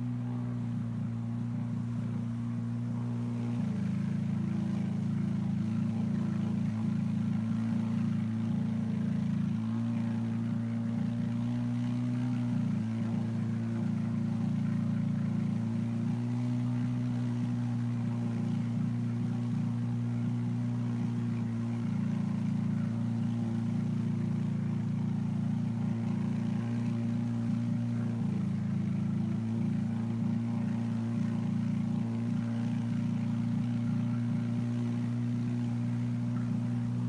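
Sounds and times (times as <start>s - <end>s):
boat engine droning: 0.0s - 37.0s.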